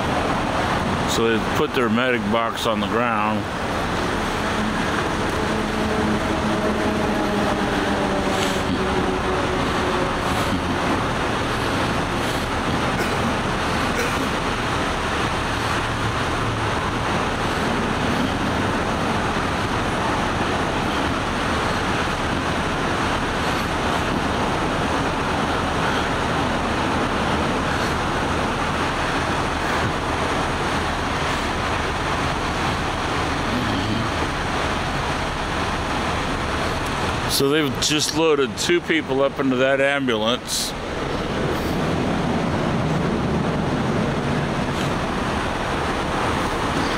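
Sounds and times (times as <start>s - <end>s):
road traffic rumble: 0.0s - 46.9s.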